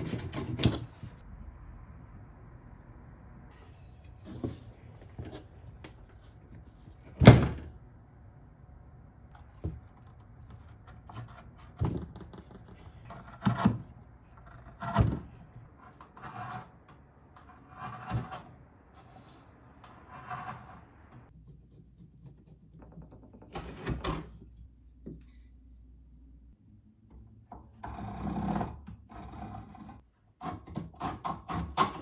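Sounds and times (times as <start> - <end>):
gouge scraping wood: 17.4 - 21.1.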